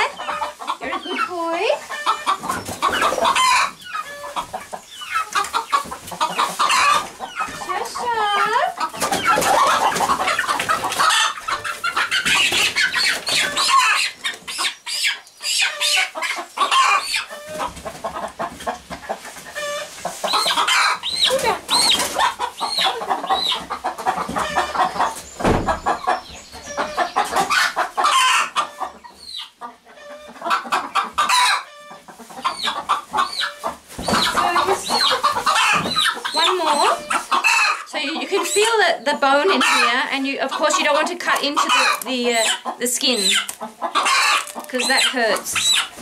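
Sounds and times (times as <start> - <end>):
chickens clucking and squawking: 0.0 - 46.0
straw rustling: 43.0 - 46.0.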